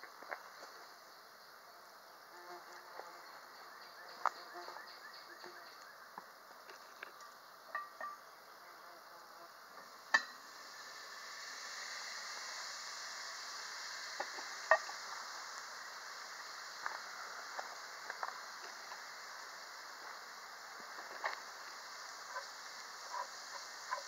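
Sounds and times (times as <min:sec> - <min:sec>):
bacon and onions sizzling: 0:09.9 - 0:24.0.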